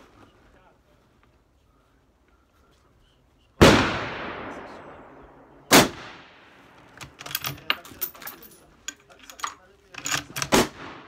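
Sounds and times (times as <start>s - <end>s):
suppressed rifle shot echoing: 3.6s - 6.6s
rifle bolt metallic clicks: 6.8s - 10.7s.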